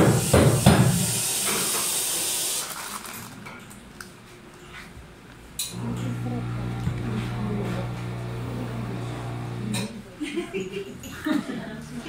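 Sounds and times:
steam wand hissing: 0.0s - 2.8s.

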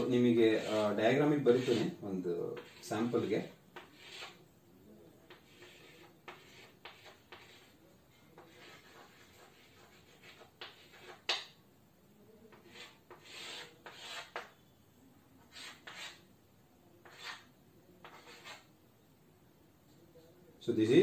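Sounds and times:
chalk drawing on chalkboard: 0.0s - 4.5s, 5.2s - 11.6s, 12.5s - 14.6s, 15.4s - 16.3s, 17.0s - 18.7s.

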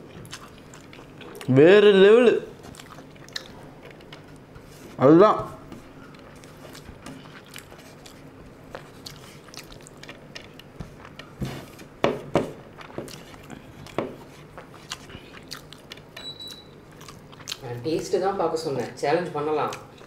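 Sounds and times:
person chewing: 0.0s - 1.6s, 2.5s - 4.6s, 6.0s - 18.1s.

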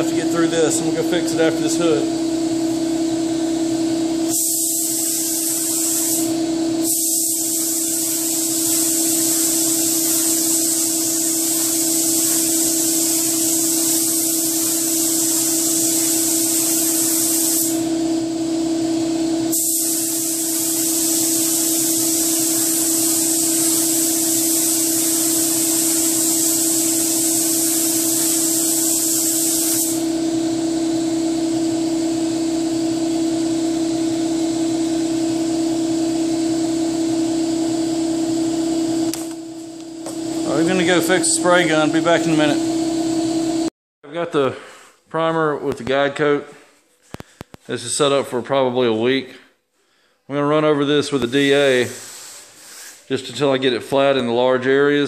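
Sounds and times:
steady low hum: 0.0s - 43.7s
spray gun hissing: 4.3s - 17.9s, 19.5s - 30.1s, 51.4s - 53.1s.

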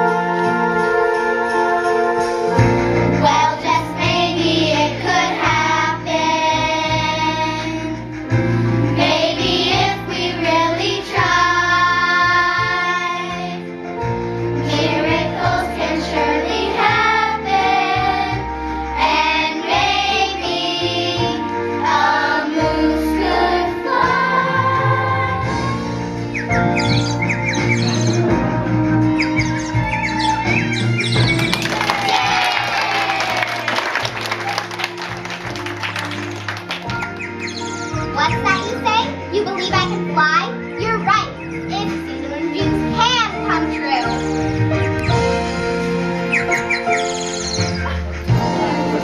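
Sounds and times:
instrumental accompaniment: 0.0s - 49.0s
children's choir singing: 3.1s - 8.0s, 8.8s - 13.7s, 14.6s - 26.0s, 48.3s - 49.0s.

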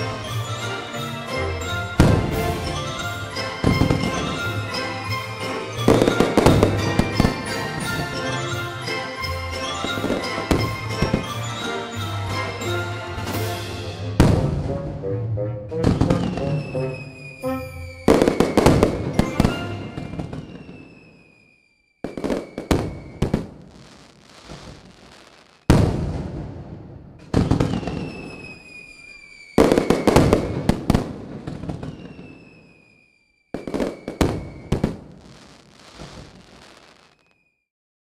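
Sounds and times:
music: 0.0s - 20.6s
firework bangs: 2.0s - 8.4s, 9.8s - 11.7s, 13.2s - 14.8s, 15.8s - 37.4s
falling firework whistle: 3.1s - 4.8s, 15.8s - 26.2s, 27.4s - 37.7s
firework crackling: 16.0s - 37.5s.

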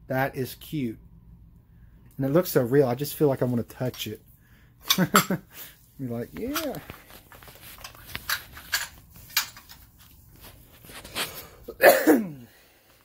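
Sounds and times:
cookware and packaging clicks: 7.7s - 9.8s.

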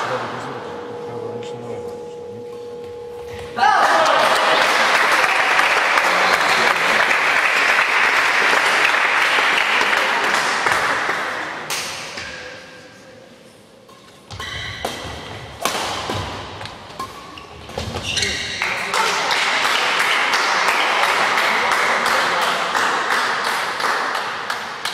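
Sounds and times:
audience applause: 3.8s - 11.3s, 18.6s - 24.9s
racket hitting shuttlecock: 10.3s - 12.6s, 13.9s - 21.2s
shoes squeaking on court floor: 13.9s - 15.4s, 16.1s - 18.6s.

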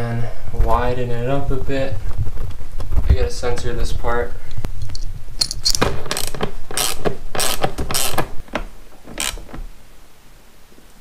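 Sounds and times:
ratchet wrench clicking: 5.4s - 8.2s, 9.2s - 9.4s.

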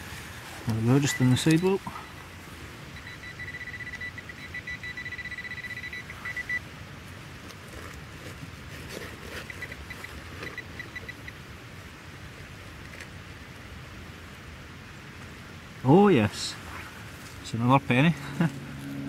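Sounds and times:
metal detector tone and beeps: 1.0s - 2.2s, 2.9s - 6.6s, 9.4s - 11.4s.

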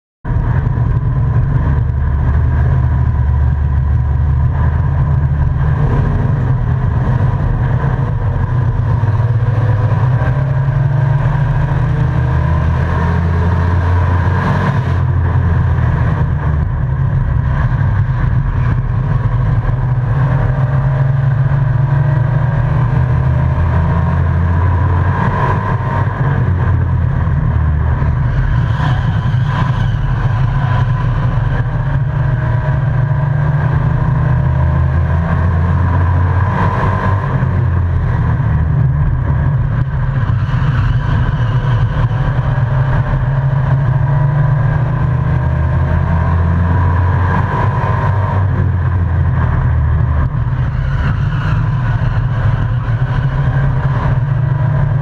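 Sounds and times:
truck engine running hard: 0.3s - 55.0s.

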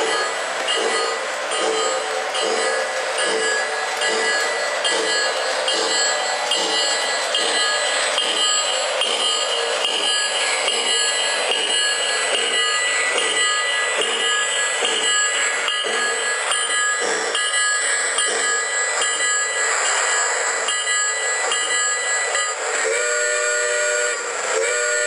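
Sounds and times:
model train rolling: 0.0s - 25.0s
train whistle chord: 22.8s - 25.0s.

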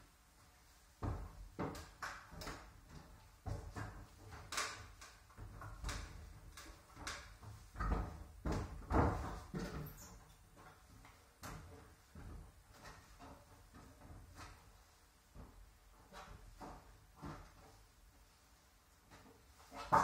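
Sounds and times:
hands and shoes knocking climbing holds: 1.0s - 14.7s.

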